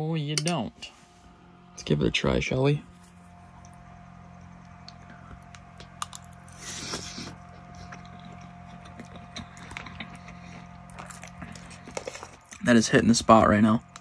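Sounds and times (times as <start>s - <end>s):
steady low hum: 0.0s - 14.0s
quiet chewing: 3.5s - 12.7s.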